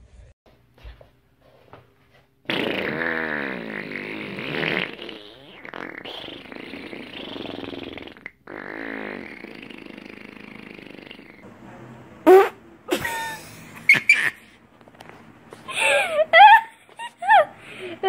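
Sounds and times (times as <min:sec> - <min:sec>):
long fart noises: 0:02.4 - 0:11.5, 0:12.2 - 0:12.6.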